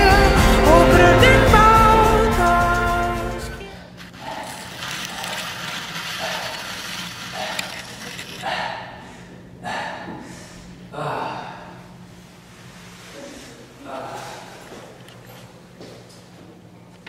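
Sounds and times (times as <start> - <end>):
low electrical hum: 3.6 - 17.0
person breathing heavily: 7.3 - 12.0.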